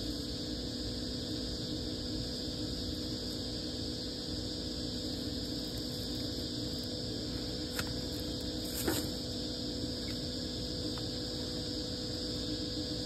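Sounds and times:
machine hum and hiss: 0:00.0 - 0:13.0.

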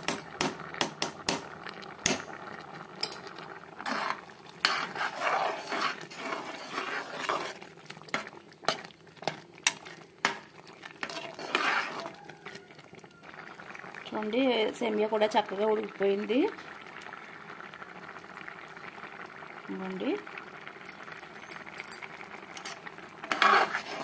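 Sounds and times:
spoon clinking and scraping pot: 0:03.0 - 0:12.6, 0:20.9 - 0:24.0.

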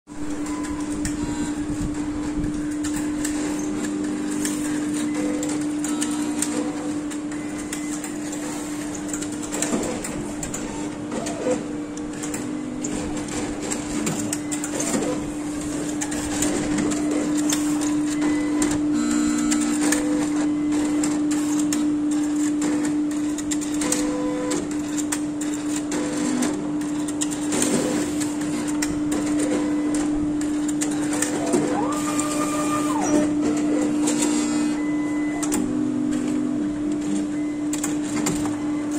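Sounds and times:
analyzer humming: 0:31.3 - 0:33.4
short motor whines: 0:31.3 - 0:33.4.

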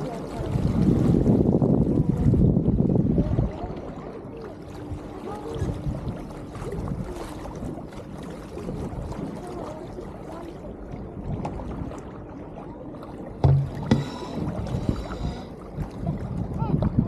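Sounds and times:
water splashing along boat hull: 0:00.0 - 0:17.0
faint voices: 0:03.1 - 0:12.0.

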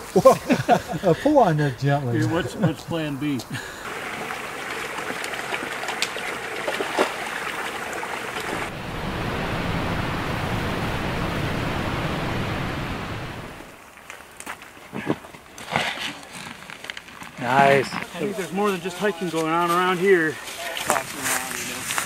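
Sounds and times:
small waterfall cascading: 0:03.8 - 0:13.8
water rushing over rocks: 0:03.8 - 0:13.8.

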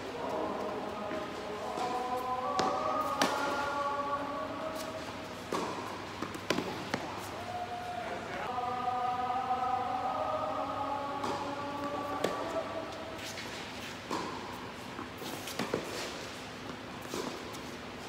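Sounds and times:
tennis ball struck by rackets: 0:05.5 - 0:07.1.

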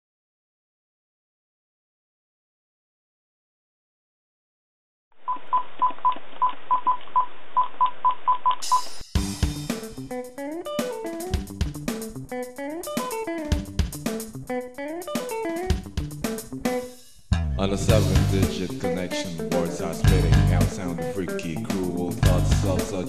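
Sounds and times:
rock band music: 0:08.7 - 0:23.0.

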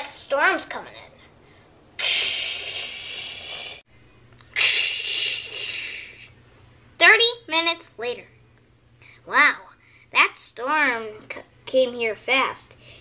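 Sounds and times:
person blowing breathy hisses: 0:02.0 - 0:03.8, 0:04.6 - 0:06.3.

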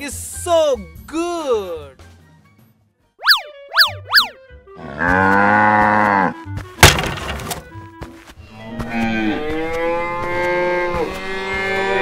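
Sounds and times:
cartoon cows mooing: 0:04.8 - 0:06.4.

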